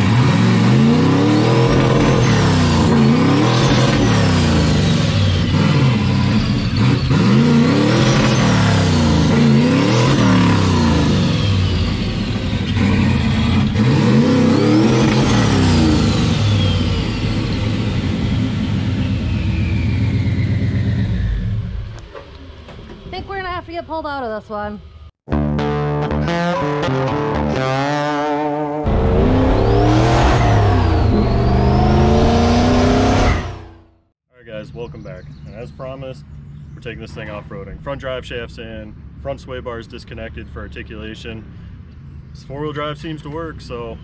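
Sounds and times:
truck engine revving: 0.0 - 22.6, 25.3 - 34.1
turbo whistle: 28.9 - 33.8.

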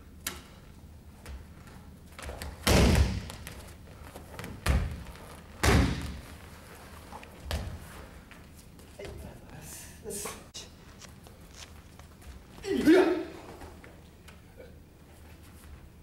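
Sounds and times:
bodies thudding on a mat: 2.2 - 6.4.

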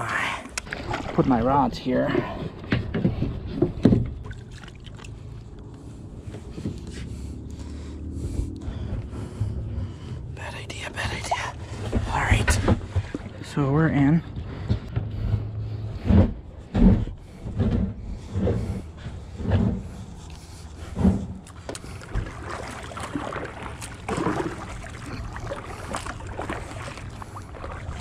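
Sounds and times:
paddle ticks: 0.0 - 1.5, 14.3 - 28.0
water swishing and splashing: 0.0 - 28.0.

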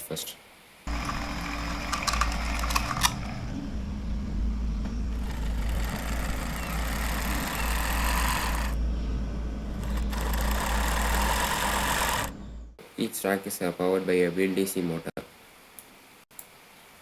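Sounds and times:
motor whir over low rumble: 0.9 - 12.8.

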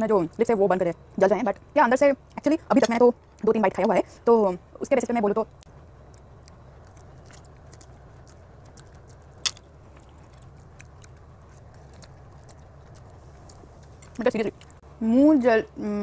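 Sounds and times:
steady low hum: 0.0 - 16.0
chewing and mouth clicks: 5.6 - 14.8.

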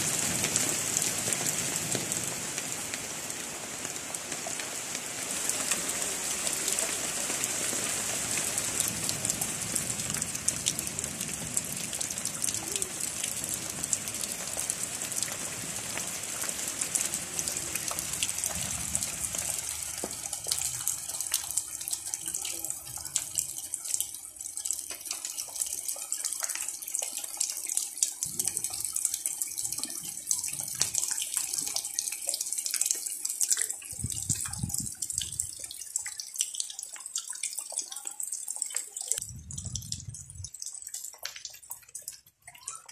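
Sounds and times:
heavy rain hissing: 0.0 - 23.1
raindrops pattering and dripping: 0.0 - 42.9.

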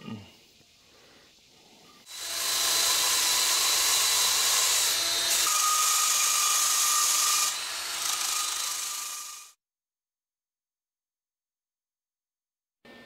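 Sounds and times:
drill grinding metal pipe: 2.1 - 9.6.

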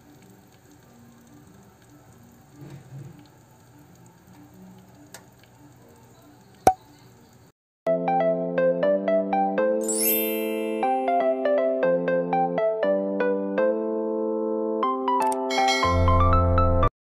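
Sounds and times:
soup simmering and bubbling: 0.0 - 7.5
chiming music: 9.7 - 12.0, 15.3 - 16.5.

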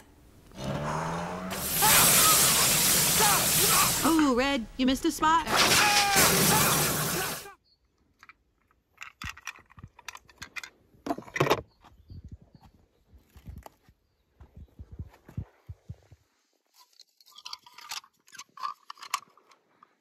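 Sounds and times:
loud rushing hiss: 1.5 - 4.8, 5.5 - 7.5
toy cars clicking and clacking: 8.1 - 10.8, 17.3 - 20.0.

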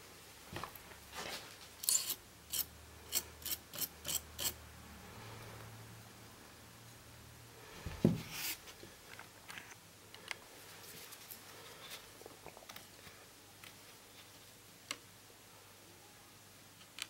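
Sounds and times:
small tools clicking and scraping: 1.8 - 4.6.

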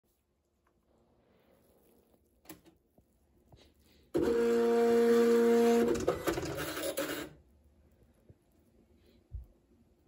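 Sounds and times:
dot-matrix printer whining and clicking: 4.2 - 7.4.

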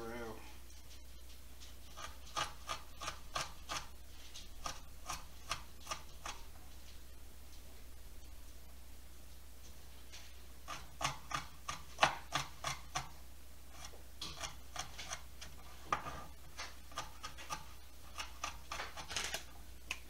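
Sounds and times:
knife chopping on plastic board: 1.9 - 6.5, 10.6 - 19.5.

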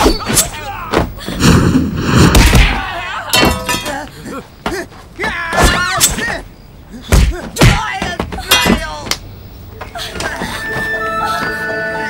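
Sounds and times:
punches thwacking: 2.2 - 3.9, 7.0 - 9.2
people shouting: 2.4 - 6.5
pained cries: 9.8 - 12.0.

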